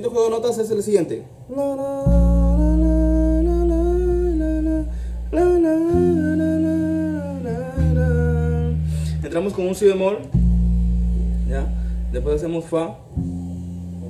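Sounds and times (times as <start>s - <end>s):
man humming melody: 1.5s - 9.2s
electric bass low notes: 1.8s - 14.0s.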